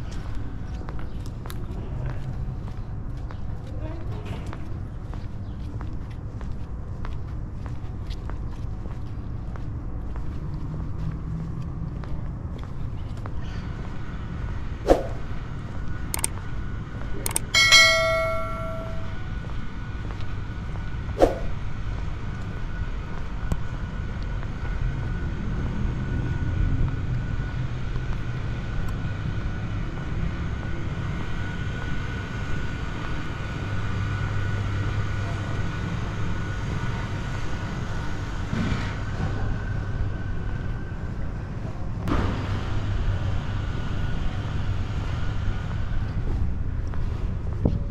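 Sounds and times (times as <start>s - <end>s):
distant city traffic rumble: 0.0s - 47.9s
sharp click: 16.2s - 16.4s, 17.2s - 19.1s.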